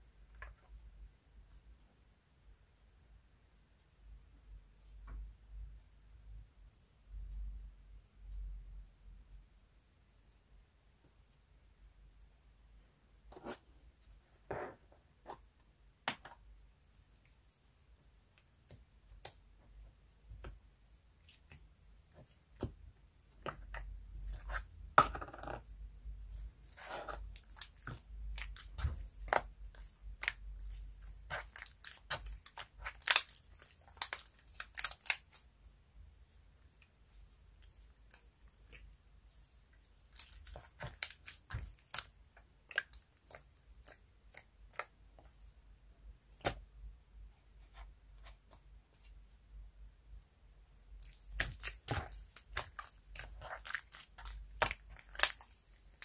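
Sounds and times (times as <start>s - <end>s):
slime clicking and squishing: 16.0s - 45.6s, 50.8s - 56.0s.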